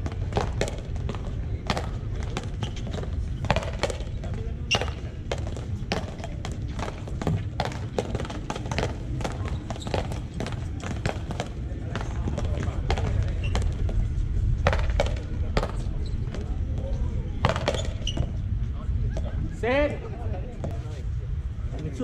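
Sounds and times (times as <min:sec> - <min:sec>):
paddles striking ball: 0:00.0 - 0:14.0, 0:14.6 - 0:16.4, 0:17.4 - 0:18.3.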